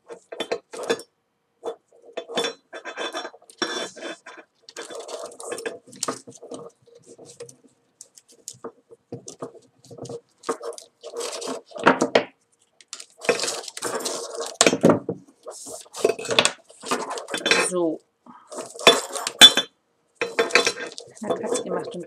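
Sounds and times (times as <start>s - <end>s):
cord rustling and scraping: 0.0s - 22.0s.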